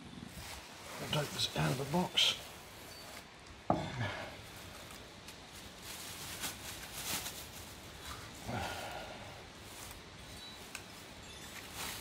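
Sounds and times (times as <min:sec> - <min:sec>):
plastic bag crinkling: 0:04.4 - 0:08.4, 0:09.5 - 0:12.0.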